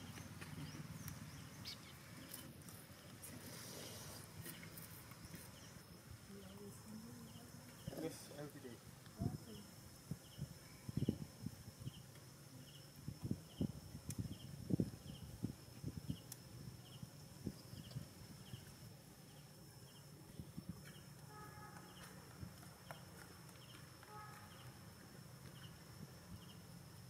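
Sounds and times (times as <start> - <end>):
insect chirping: 0.0 - 27.0.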